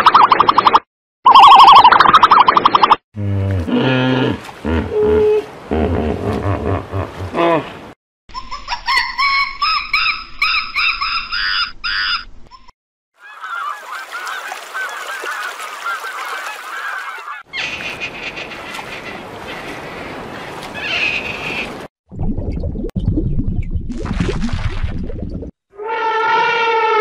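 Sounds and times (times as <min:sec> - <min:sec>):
geese honking: 0:13.2 - 0:19.4.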